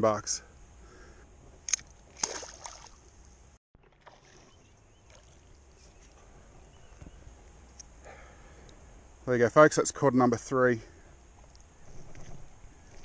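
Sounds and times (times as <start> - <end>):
fish splashing into water: 2.2 - 3.0, 3.8 - 5.4
faint water lapping: 3.8 - 6.3.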